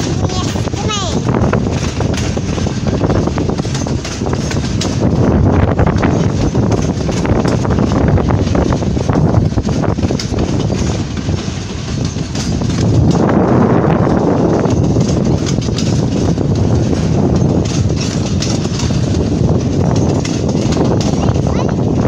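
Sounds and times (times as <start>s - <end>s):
freight train rumbling past: 0.0s - 22.0s
wheels clacking over rails: 0.0s - 22.0s.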